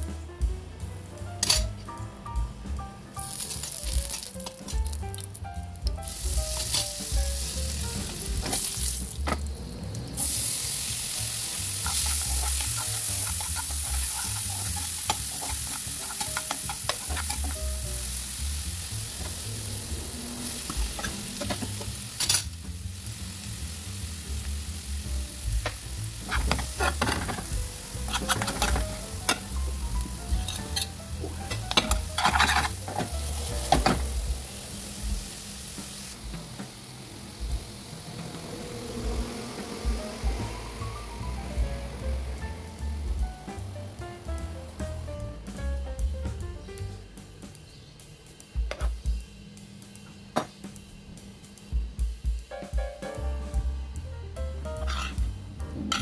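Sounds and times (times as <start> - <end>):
food sizzling in hot oil: 1.1 - 2.1, 3.0 - 46.9, 54.6 - 56.0
spatula scraping a pan: 11.7 - 17.7, 26.2 - 29.5, 30.4 - 34.0, 54.8 - 55.2.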